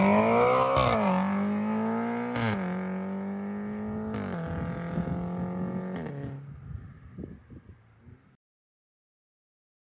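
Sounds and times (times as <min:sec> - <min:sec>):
car engine accelerating: 0:00.0 - 0:06.4.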